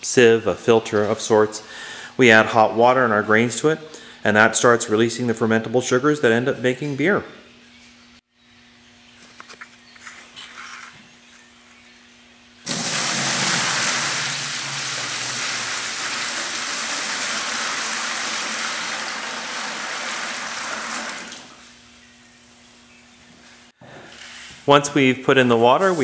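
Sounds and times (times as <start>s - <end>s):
water pouring into plastic cooler: 12.7s - 21.6s.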